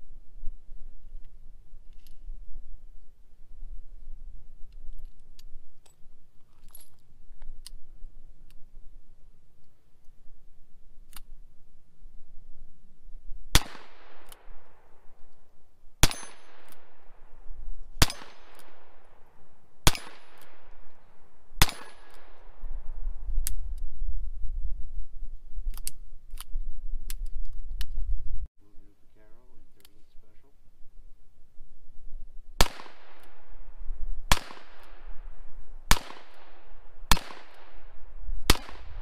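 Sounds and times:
revolver gunshots with echo: 13.5s - 15.2s, 16.0s - 22.7s, 32.6s - 39.0s.

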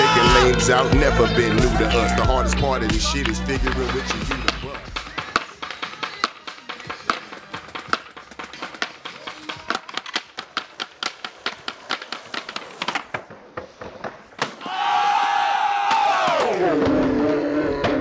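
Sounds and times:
group yelling and cheering: 0.0s - 4.9s, 14.5s - 17.4s.

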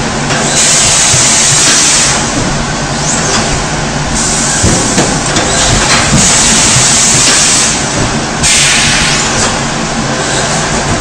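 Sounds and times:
steady machine noise: 0.0s - 11.0s
compressed air hissing: 8.4s - 9.6s.

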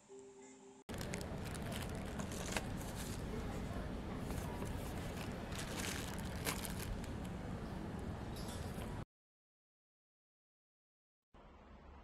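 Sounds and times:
low background noise: 0.2s - 9.0s
plastic wrapping crinkling: 0.9s - 3.4s, 4.2s - 7.3s.

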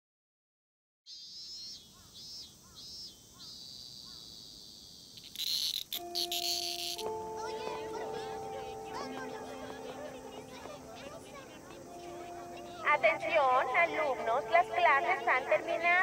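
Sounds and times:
cicadas buzzing: 1.1s - 16.0s
held chime notes: 6.0s - 16.0s.

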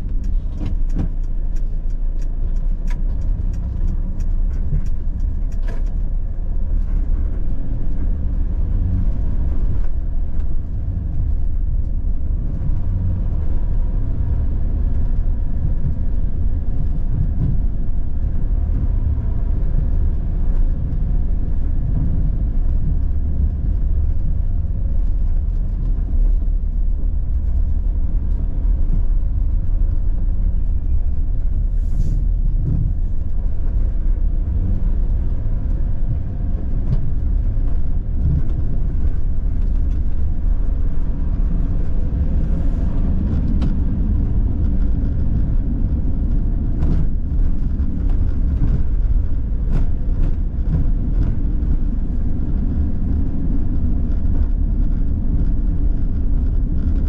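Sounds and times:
light clicks and rattles: 0.0s - 13.4s
engine and road rumble: 0.0s - 57.0s.

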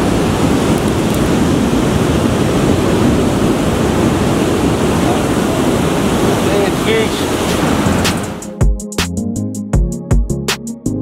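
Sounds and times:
ocean surf on rocks: 0.0s - 8.6s
wind on microphone: 0.0s - 8.6s.

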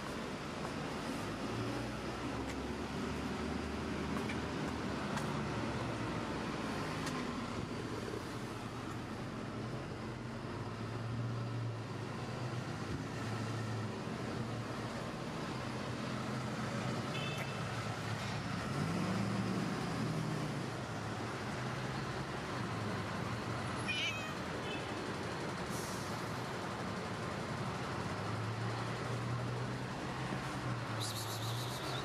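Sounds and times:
cat meowing: 23.9s - 24.4s.

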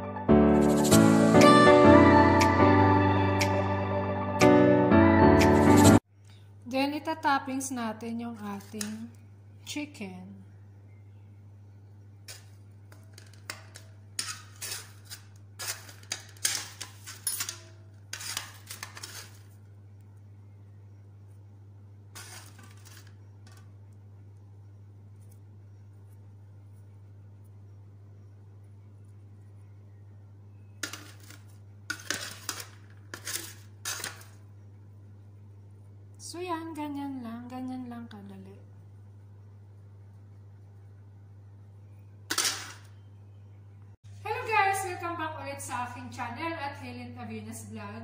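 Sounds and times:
low electrical hum: 6.0s - 48.0s
tongs scraping ceramic platter: 12.3s - 19.5s, 30.8s - 34.4s
short scraping rustling noises: 22.2s - 23.1s.

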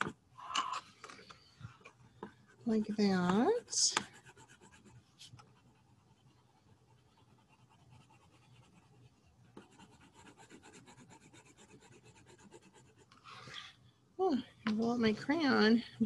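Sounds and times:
crayon scratching on paper: 2.4s - 13.1s.

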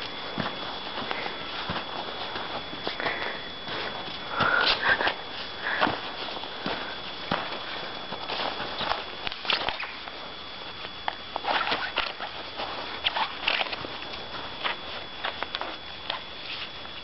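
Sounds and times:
footsteps crunching in snow: 0.0s - 17.0s.

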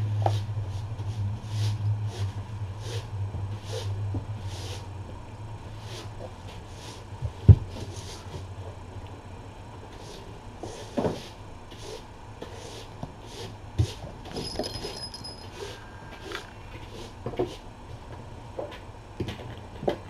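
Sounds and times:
steady low hum: 0.0s - 20.0s
brush sweeping floor: 0.2s - 4.9s, 5.8s - 7.1s, 7.7s - 8.5s, 9.9s - 14.6s.

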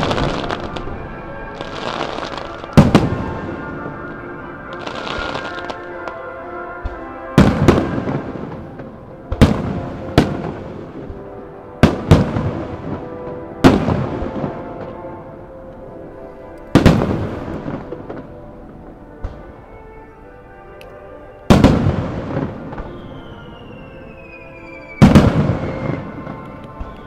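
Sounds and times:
firework shells booming: 6.8s - 15.0s, 25.0s - 27.0s.

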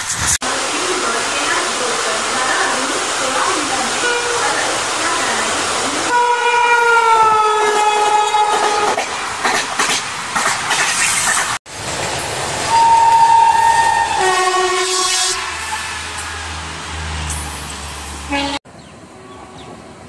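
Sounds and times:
locomotive air horn: 6.1s - 9.0s, 12.7s - 16.4s, 18.2s - 18.6s
train wheels clattering over rails: 8.9s - 12.6s.

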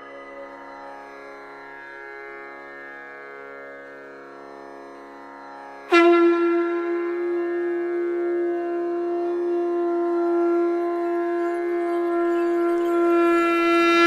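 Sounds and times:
wind instrument note: 5.9s - 14.0s.

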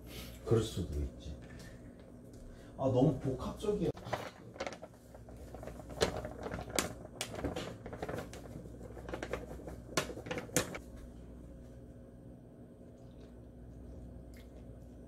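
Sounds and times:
plastic bag crinkling: 4.0s - 10.8s.

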